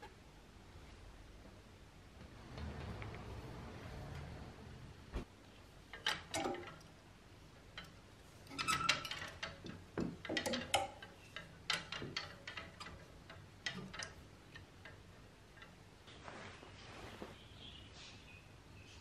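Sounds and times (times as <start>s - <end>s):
wooden hangers clacking: 5.8s - 7.0s, 7.6s - 16.2s.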